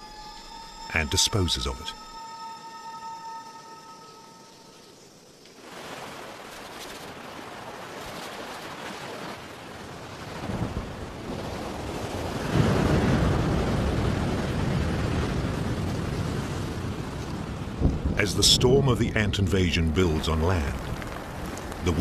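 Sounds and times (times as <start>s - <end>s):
wind and rain rushing: 4.5s - 22.0s.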